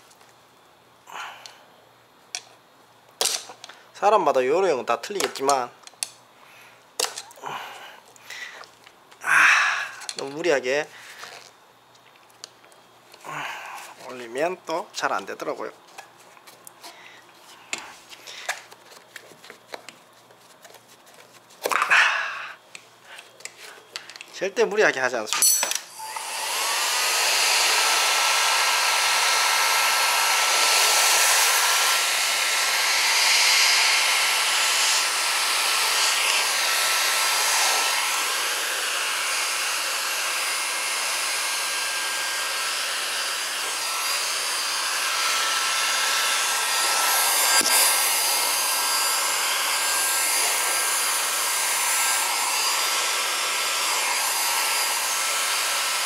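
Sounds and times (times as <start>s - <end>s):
heat gun fan whine: 21.6s - 56.0s.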